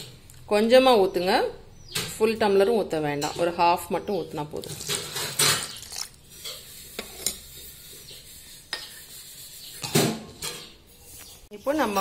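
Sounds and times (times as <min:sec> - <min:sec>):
metal jar and lid clinking: 0:04.6 - 0:06.2.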